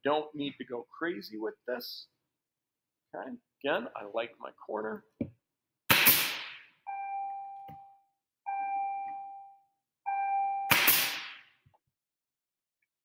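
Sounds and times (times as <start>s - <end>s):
nail gun firing: 5.9s - 6.6s, 10.7s - 11.5s
ringing tones: 6.9s - 10.8s.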